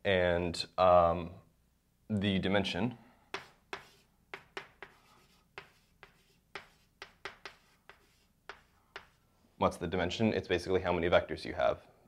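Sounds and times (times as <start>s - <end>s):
chalk writing on blackboard: 3.3s - 9.2s.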